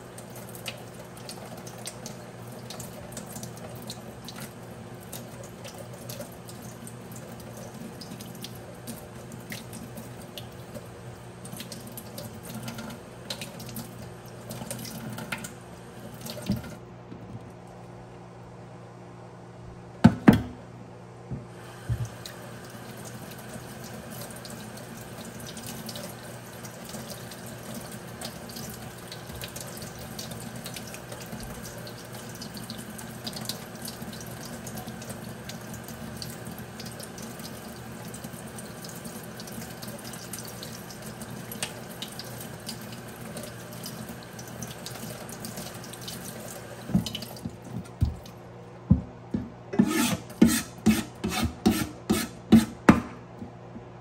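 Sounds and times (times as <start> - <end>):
tap running into steel sink: 16.3 - 17.5, 46.8 - 48.3
knife striking cutting board: 48.9 - 53.2.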